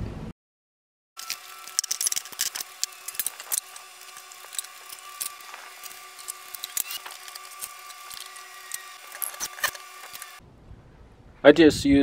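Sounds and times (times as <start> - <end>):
hand tools clicking and knocking: 1.2 - 10.4.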